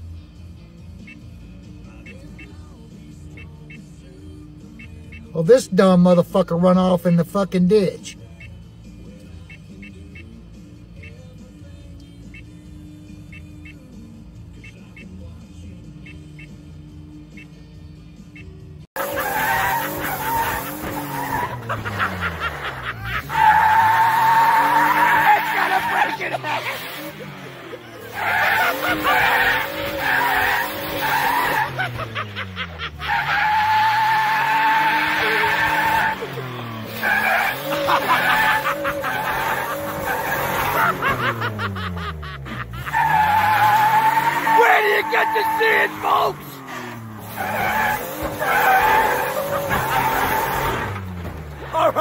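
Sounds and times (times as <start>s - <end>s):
truck engine revving: 0.0s - 52.0s
tyres squealing: 19.0s - 52.0s.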